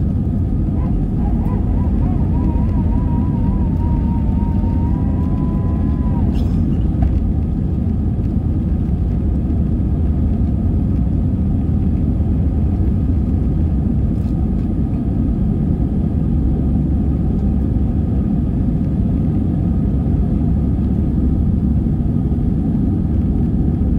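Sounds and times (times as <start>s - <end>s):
aircraft engines rumbling in cabin: 0.0s - 23.9s
faint steady tones: 0.8s - 6.7s.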